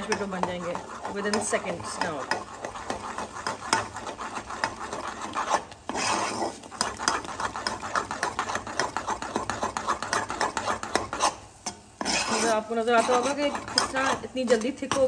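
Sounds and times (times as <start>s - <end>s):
metal utensil scraping saucepan: 0.0s - 15.0s.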